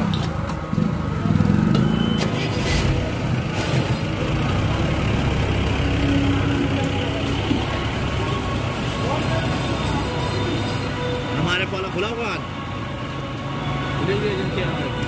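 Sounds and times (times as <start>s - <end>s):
vehicle engines rumbling: 0.0s - 15.0s.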